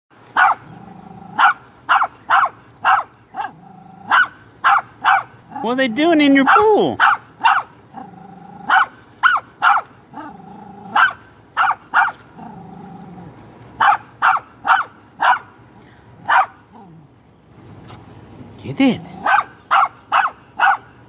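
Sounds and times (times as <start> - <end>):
small dog barking sharply: 0.4 - 0.6, 1.4 - 3.5, 4.1 - 5.3, 6.4 - 7.7, 8.7 - 9.9, 10.9 - 12.2, 13.8 - 15.5, 16.3 - 16.6, 19.2 - 20.9
dog growling low: 0.6 - 1.4, 3.5 - 4.2, 7.9 - 8.9, 10.1 - 11.0, 12.3 - 13.4, 16.7 - 17.1, 19.0 - 19.4.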